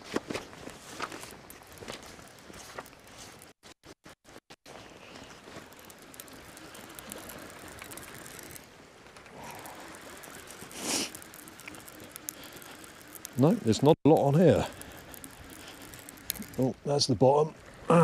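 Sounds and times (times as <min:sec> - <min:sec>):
fishing reel winding: 0:05.6 - 0:08.7, 0:09.4 - 0:16.9.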